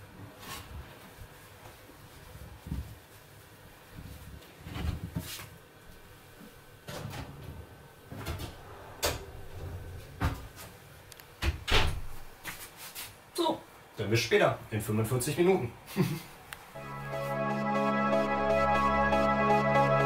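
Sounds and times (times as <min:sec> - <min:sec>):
oven door shutting: 0:06.9 - 0:10.6, 0:11.4 - 0:12.1.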